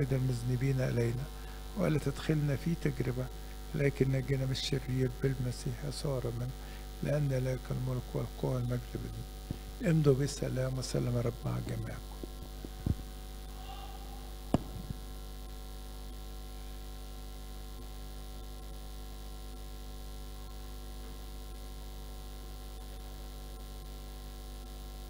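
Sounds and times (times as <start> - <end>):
electrical mains hum: 0.0 - 25.0
microphone handling knock: 12.2 - 13.1, 14.5 - 15.0.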